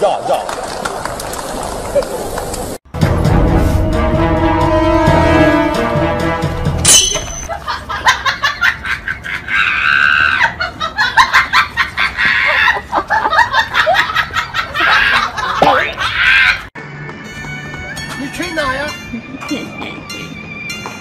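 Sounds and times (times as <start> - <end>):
person laughing hard: 7.5 - 16.7.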